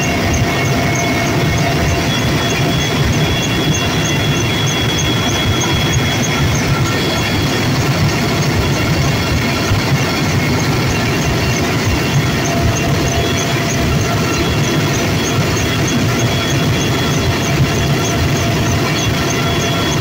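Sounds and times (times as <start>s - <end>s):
helicopter engines and rotor: 0.0s - 20.0s
high whining tones: 0.0s - 20.0s.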